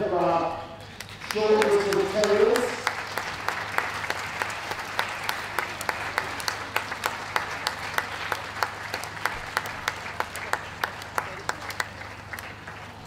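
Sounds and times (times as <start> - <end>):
steady low hum: 0.0 - 13.0
spectators clapping: 0.8 - 13.0.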